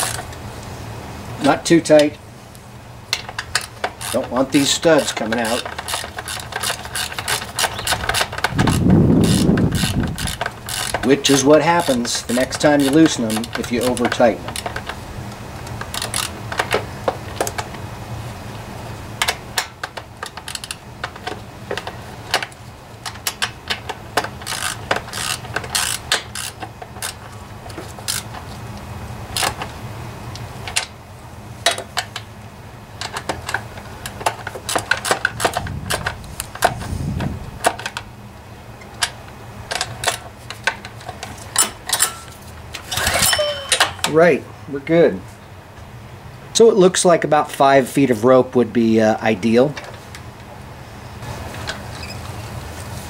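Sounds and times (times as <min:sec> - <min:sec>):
ratchet wrench clicking: 0:03.1 - 0:15.0, 0:15.8 - 0:16.8, 0:19.2 - 0:27.3, 0:28.0 - 0:28.3.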